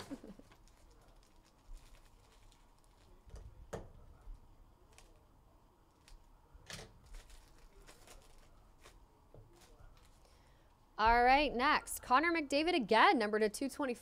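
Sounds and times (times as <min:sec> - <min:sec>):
foil wrapper crinkling and tearing: 0:00.0 - 0:03.2, 0:04.8 - 0:05.2, 0:07.0 - 0:10.3.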